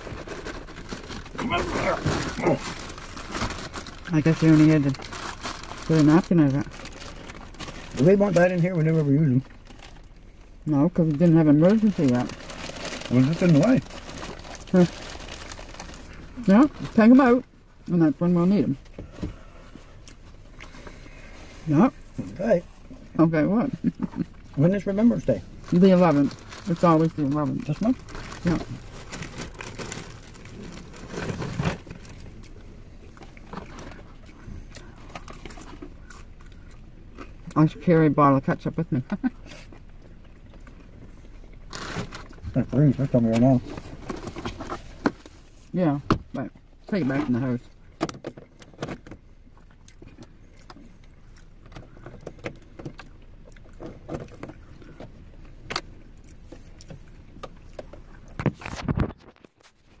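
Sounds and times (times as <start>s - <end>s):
plastic bag rustling: 0.0s - 10.1s, 11.2s - 17.2s, 23.8s - 32.4s, 41.7s - 45.7s
low steady hum: 0.0s - 60.0s.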